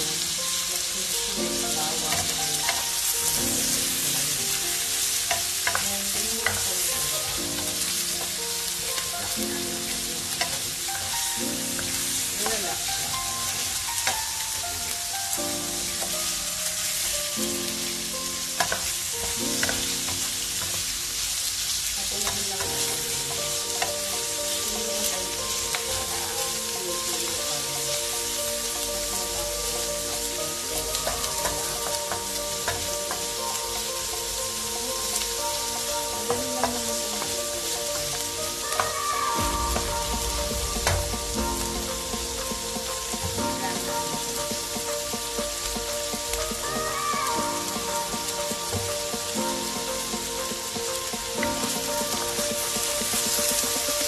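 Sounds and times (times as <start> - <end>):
chicken and onions sizzling: 0.0 - 54.0.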